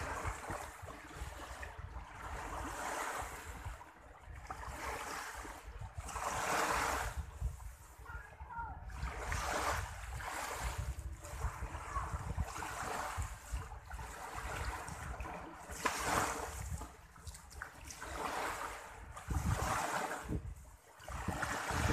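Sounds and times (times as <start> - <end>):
small waves washing: 0.0 - 21.9
wind rumbling on microphone: 0.0 - 21.9.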